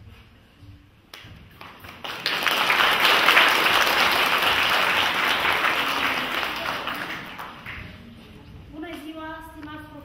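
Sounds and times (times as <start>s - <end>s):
audience applause: 1.6s - 7.9s.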